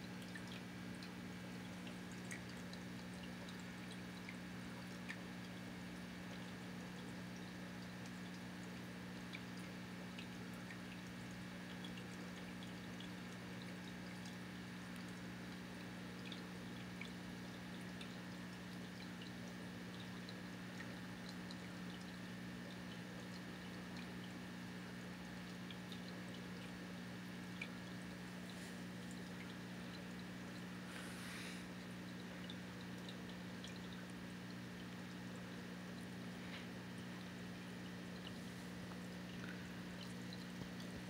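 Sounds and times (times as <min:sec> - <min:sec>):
faint electrical hum: 0:00.0 - 0:41.0
soft hiss: 0:28.2 - 0:31.9.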